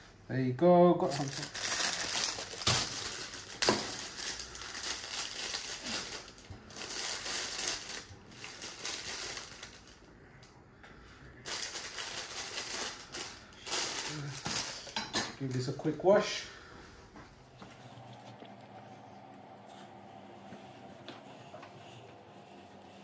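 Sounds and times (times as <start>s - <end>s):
plastic bag crinkling: 1.0s - 10.4s, 11.4s - 15.8s.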